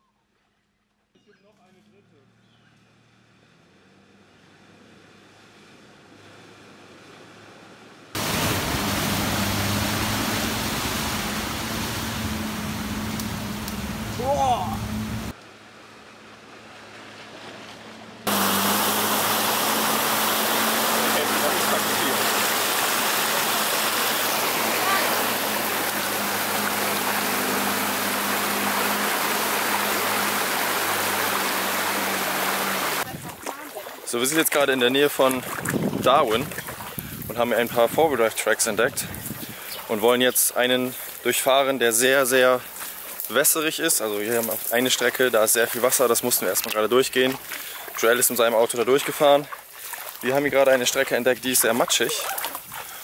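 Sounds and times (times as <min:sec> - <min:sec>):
engine humming: 0:02.1 - 0:53.0
water rushing over vehicle: 0:06.0 - 0:53.0
low engine drone: 0:08.1 - 0:33.1
faint distant splashing: 0:08.2 - 0:15.3, 0:16.0 - 0:53.0.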